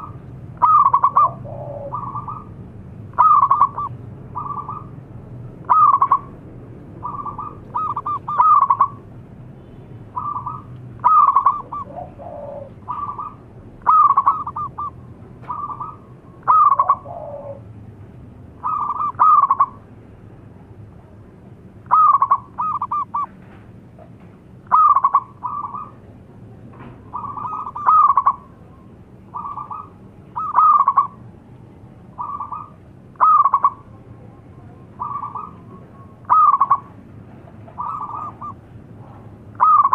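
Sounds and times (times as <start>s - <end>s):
dove cooing: 0.0s - 5.0s, 5.6s - 6.4s, 7.0s - 9.0s, 10.2s - 17.7s, 18.6s - 19.8s, 21.8s - 23.3s, 24.6s - 26.0s, 27.1s - 31.2s, 32.1s - 34.0s, 34.6s - 37.0s, 37.6s - 38.6s, 39.5s - 39.9s.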